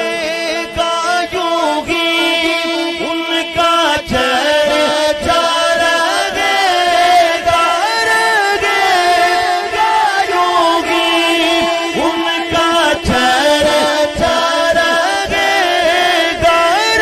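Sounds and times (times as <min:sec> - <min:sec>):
man singing into a microphone: 0:00.0 - 0:17.0.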